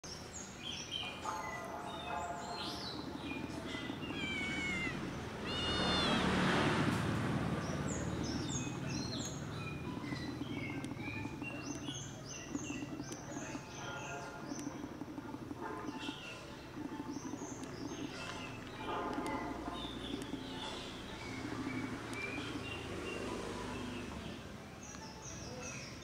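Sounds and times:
small birds chirping: 0.0s - 26.0s
cat meowing: 3.7s - 6.6s.

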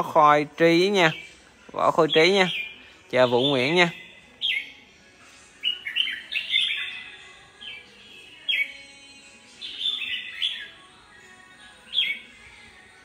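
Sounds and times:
bird singing whistled phrases: 2.1s - 4.8s, 5.6s - 7.9s, 9.6s - 10.8s.

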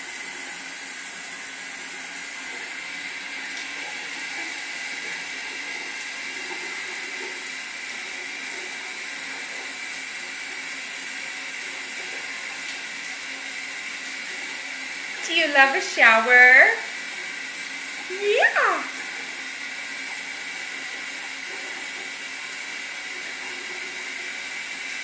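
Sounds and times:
shower spray hissing: 15.2s - 25.0s.

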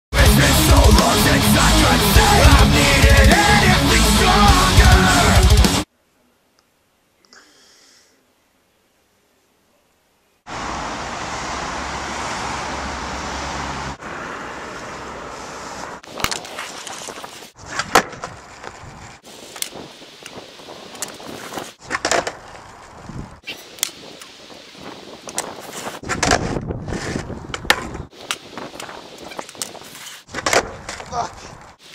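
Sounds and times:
skateboard wheels rolling: 10.5s - 31.9s.

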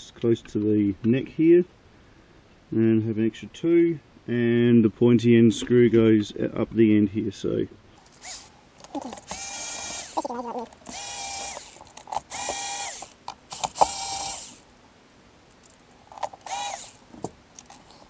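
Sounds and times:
electric screwdriver whining: 8.2s - 14.6s, 16.4s - 17.0s
screwdriver clicks: 10.9s - 14.4s.

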